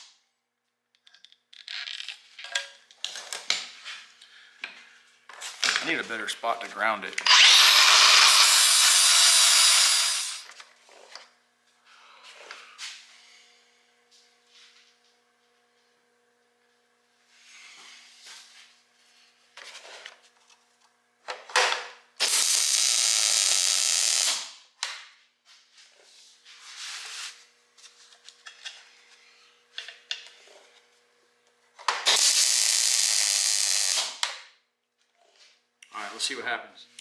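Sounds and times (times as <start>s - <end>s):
welding arc hissing: 7.4s - 10.5s, 22.2s - 24.5s, 32.0s - 34.2s.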